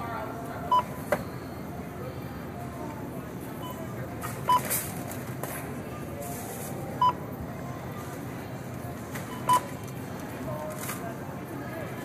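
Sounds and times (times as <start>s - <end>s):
barcode scanner beeps: 0.7s - 1.9s, 3.6s - 4.9s, 7.0s - 7.3s, 9.2s - 9.9s.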